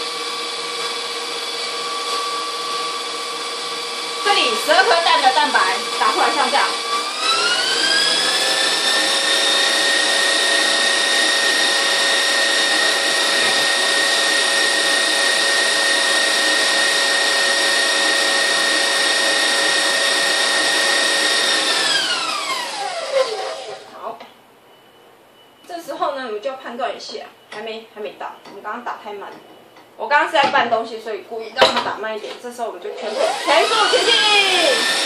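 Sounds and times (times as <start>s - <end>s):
stand mixer motor whine: 0.0s - 23.9s, 33.0s - 35.0s.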